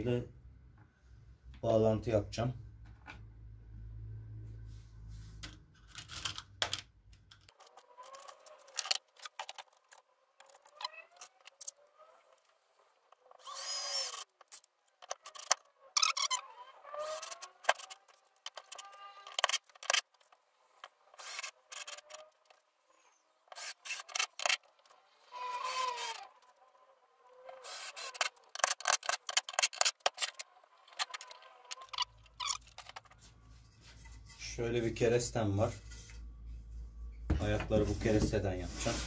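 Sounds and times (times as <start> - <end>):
cordless drill motor whine: 13.4 - 14.2, 25.2 - 26.4, 27.3 - 28.2
sharp clicks and knocks: 28.1 - 33.2.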